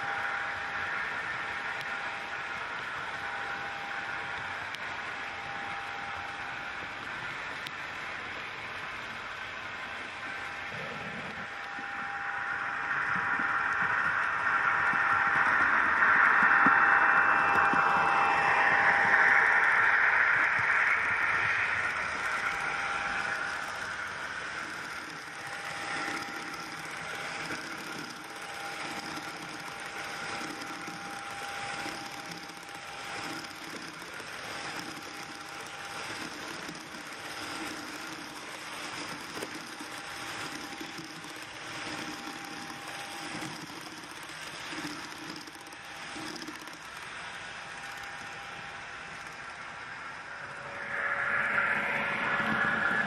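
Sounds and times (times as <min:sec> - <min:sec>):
small electric motor whir: 0:00.0 - 0:53.0
model train wheels rattling: 0:09.1 - 0:50.7.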